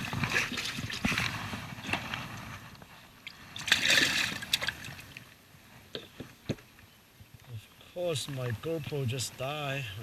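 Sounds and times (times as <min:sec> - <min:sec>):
water sloshing: 0:00.0 - 0:02.2, 0:03.2 - 0:05.4.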